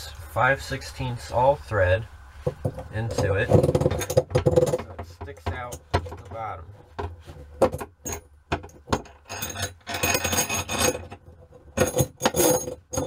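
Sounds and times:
metal nuts and washers clinking: 3.1s - 13.0s
metal parts scraping on rod: 9.0s - 13.0s.

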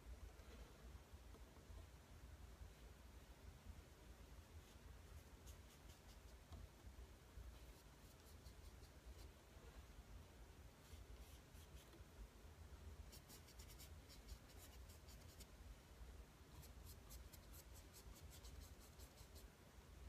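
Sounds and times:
paintbrush strokes on canvas: 4.4s - 6.7s, 7.4s - 10.0s, 10.7s - 12.1s, 13.0s - 15.6s, 16.5s - 19.6s.

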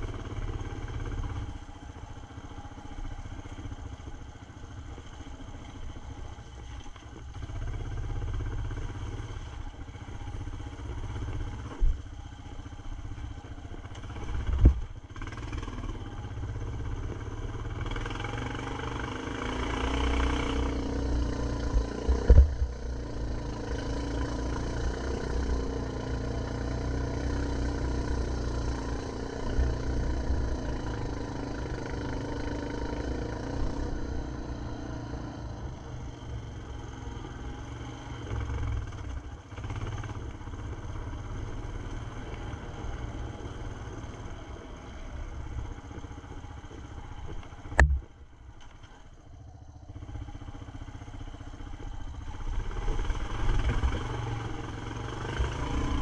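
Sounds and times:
atv engine running: 0.0s - 56.0s
sharp thumps: 47.7s - 48.2s.

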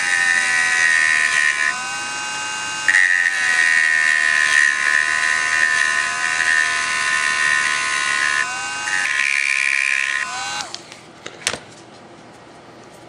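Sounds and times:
rotary tool motor whine: 0.0s - 10.8s.

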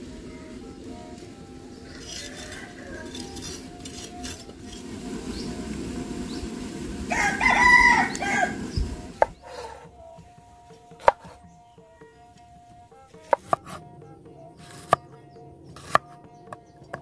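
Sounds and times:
low steady rush: 0.0s - 13.2s
rooster crowing: 1.5s - 10.1s
knife scraping radish: 2.0s - 4.9s, 9.2s - 9.9s, 14.6s - 15.0s, 15.8s - 16.0s.

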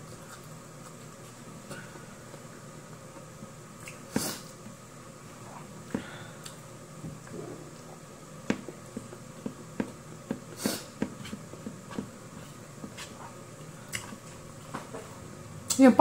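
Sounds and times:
person chewing food: 0.0s - 2.5s, 3.8s - 4.7s, 5.3s - 14.7s
hissy breath: 10.6s - 11.0s.

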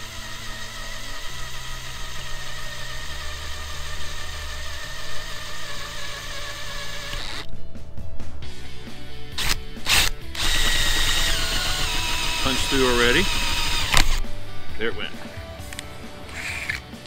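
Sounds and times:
cordless drill boring metal: 0.0s - 7.5s, 9.4s - 14.3s, 16.3s - 16.8s.

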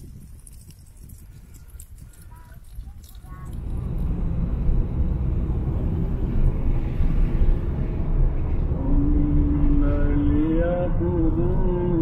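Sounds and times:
low rumble: 3.3s - 12.0s.

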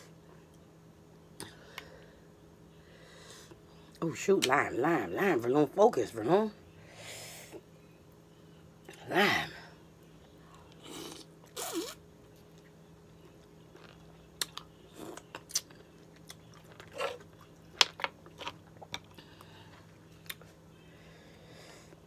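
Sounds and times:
chewing clicks and smacks: 12.4s - 19.2s.

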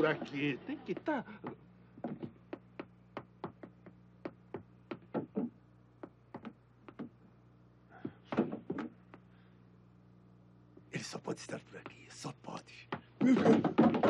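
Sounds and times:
steady low hum: 0.0s - 14.0s
light knocks and taps: 6.0s - 7.2s.

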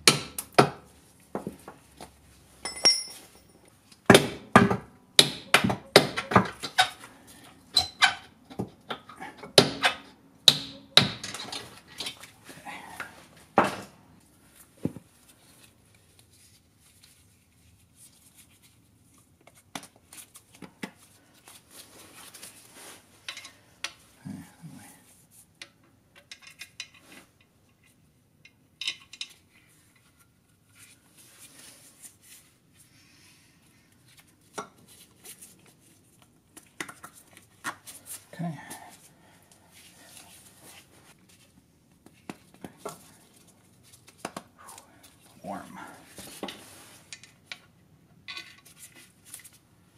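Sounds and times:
metal tools clinking and knocking: 2.6s - 3.7s, 48.2s - 48.7s.

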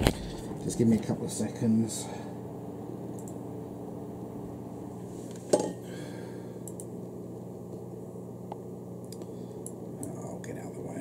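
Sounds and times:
computer tower humming: 0.0s - 11.0s
faint clicks: 6.6s - 6.9s.

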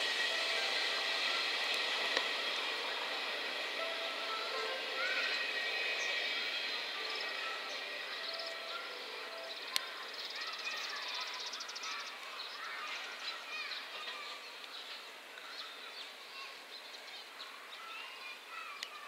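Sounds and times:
outdoor background: 0.0s - 19.0s
small birds chirping: 5.0s - 19.0s.

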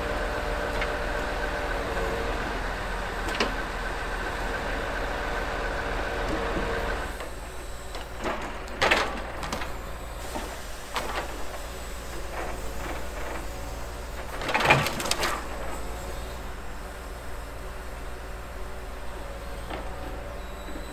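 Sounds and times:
diesel truck engine running: 0.0s - 8.6s
hydraulic crane working: 0.0s - 20.9s.

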